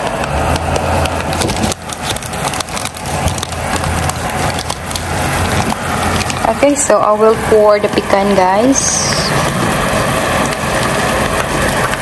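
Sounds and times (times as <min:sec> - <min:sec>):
low steady hum: 0:00.0 - 0:12.0
syrup bubbling in a pan: 0:00.4 - 0:06.8, 0:09.0 - 0:12.0.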